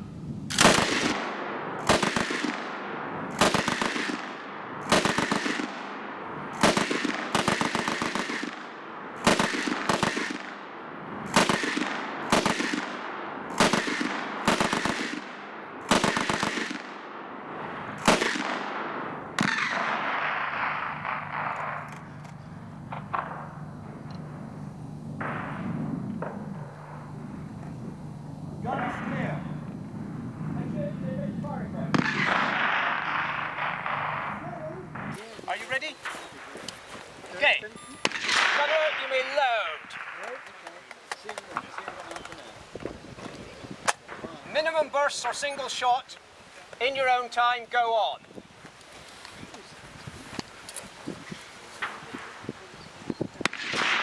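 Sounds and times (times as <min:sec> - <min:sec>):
machine gun single shots: 0:00.5 - 0:17.1, 0:17.8 - 0:22.0, 0:31.9 - 0:34.4, 0:38.0 - 0:40.7, 0:53.4 - 0:54.0
gunshot echo: 0:00.5 - 0:17.2, 0:17.8 - 0:21.9, 0:22.9 - 0:23.6, 0:25.2 - 0:27.1, 0:31.9 - 0:34.4, 0:38.0 - 0:39.1, 0:53.4 - 0:54.0.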